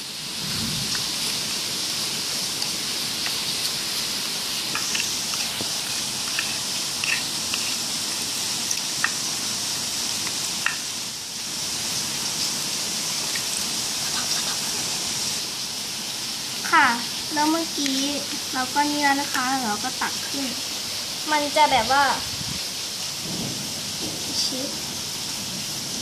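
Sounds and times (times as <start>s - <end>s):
steady background hiss: 0.0s - 26.0s
spoon stirring wet slime: 4.7s - 9.2s, 13.2s - 14.8s.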